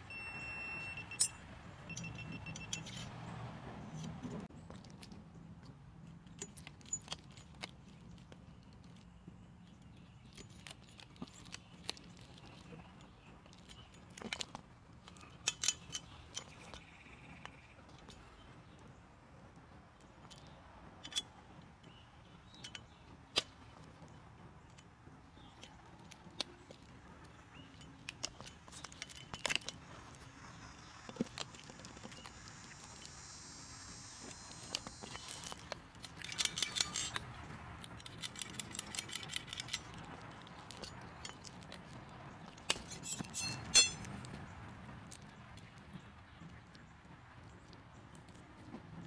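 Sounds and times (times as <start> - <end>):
metal parts clicking and clinking: 1.0 - 3.2, 6.2 - 8.2, 10.3 - 16.8, 20.2 - 21.3, 27.6 - 29.8, 34.5 - 41.9, 42.6 - 44.1
sharp metal click: 34.5 - 37.3, 42.7 - 44.1.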